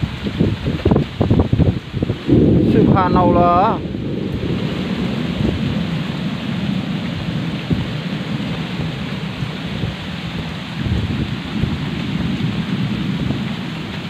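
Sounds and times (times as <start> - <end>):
heavy rain on plastic sheeting: 0.0 - 14.0
low rumble: 1.8 - 8.3.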